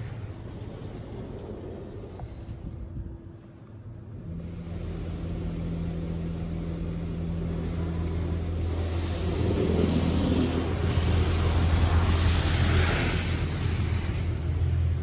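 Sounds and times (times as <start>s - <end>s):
car wash machinery hum: 0.0s - 15.0s
spray hissing: 7.9s - 15.0s.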